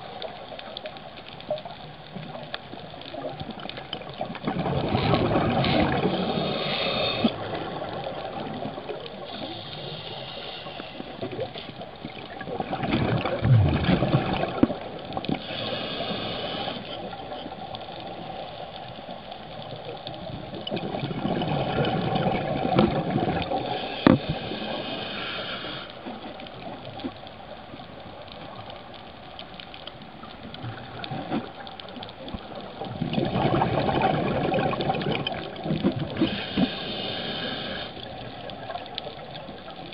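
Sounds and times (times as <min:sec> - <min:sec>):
gurgling exhaled bubbles: 0:03.1 - 0:10.0, 0:11.2 - 0:17.7, 0:20.0 - 0:25.8, 0:32.4 - 0:39.8
regulator hiss on inhale: 0:05.6 - 0:07.5, 0:08.8 - 0:11.8, 0:15.3 - 0:19.5, 0:23.5 - 0:26.3, 0:36.1 - 0:38.6.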